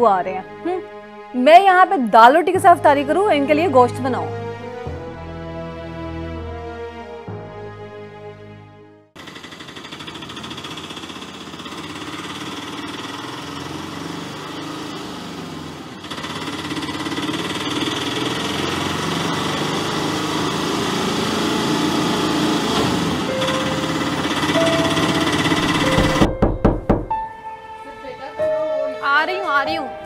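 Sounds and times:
auto-rickshaw engine chugging: 9.2 - 26.3.

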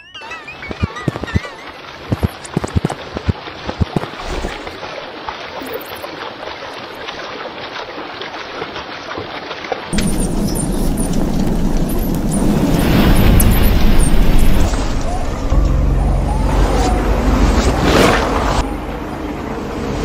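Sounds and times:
warbling tone: 0.0 - 4.4, 12.3 - 19.3
sharp crackles and knocks: 0.7 - 4.8, 9.9 - 15.8.

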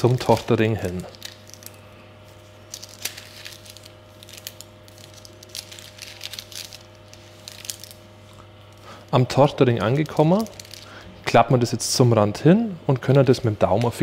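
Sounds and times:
baking paper crinkling: 0.0 - 11.0.

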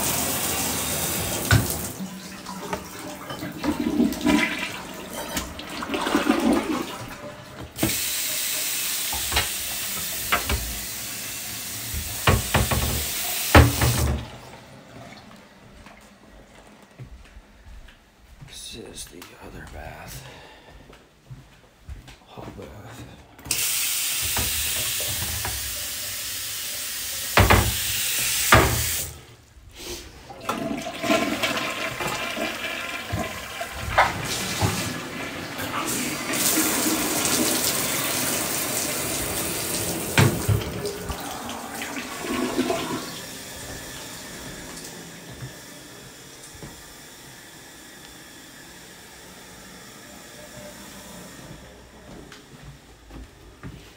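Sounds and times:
faucet running into sink: 0.0 - 14.6, 23.5 - 29.2, 30.3 - 51.4
toilet flushing and refilling: 0.0 - 16.1, 23.4 - 29.4, 30.0 - 52.1.

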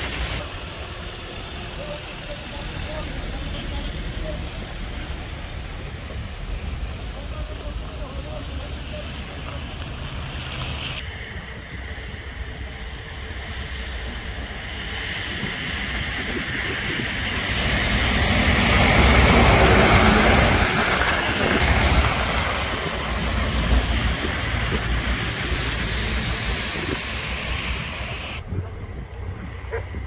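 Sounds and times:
truck passing: 0.0 - 30.0
wind rumble on microphone: 9.5 - 30.0.

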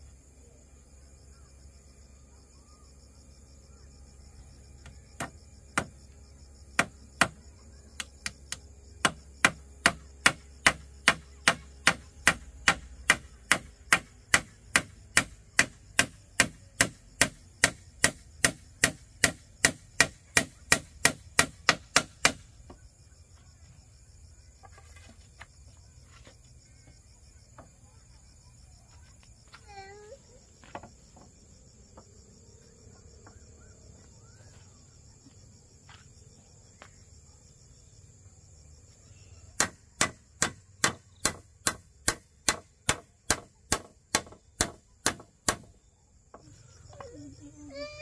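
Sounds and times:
high insect drone: 0.0 - 48.0
sharp striking blows: 9.0 - 22.5, 39.6 - 45.7.

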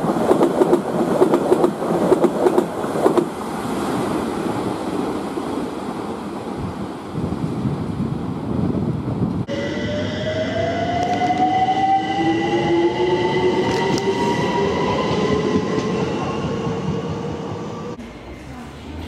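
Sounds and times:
train rumbling on track: 0.0 - 19.0
steady high tone: 9.5 - 18.4.

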